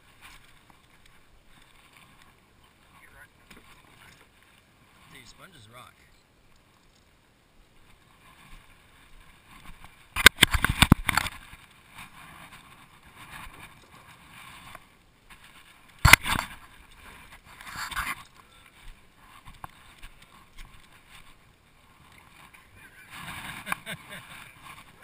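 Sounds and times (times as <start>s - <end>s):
gear clattering on kayaks: 0.0s - 25.0s.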